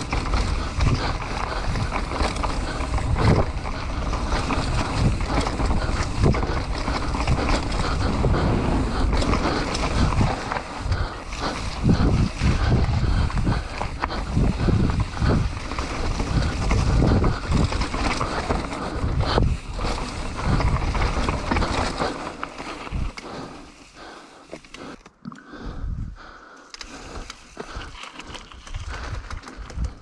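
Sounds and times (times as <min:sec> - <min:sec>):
wind buffeting microphone: 0:00.0 - 0:22.1
bike tyres rumbling on dirt: 0:00.0 - 0:25.0, 0:26.8 - 0:30.0.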